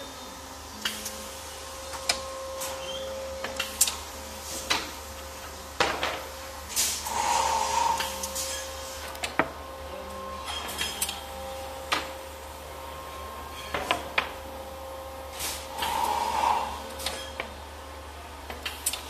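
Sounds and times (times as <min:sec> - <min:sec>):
faint machine hum: 0:00.0 - 0:19.0
air hiss: 0:06.7 - 0:09.1, 0:15.3 - 0:17.3.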